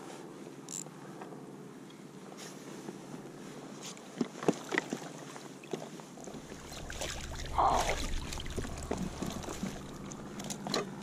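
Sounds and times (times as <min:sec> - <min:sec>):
water splashing and dripping: 0:06.2 - 0:10.6
low wind rumble on microphone: 0:06.2 - 0:11.0.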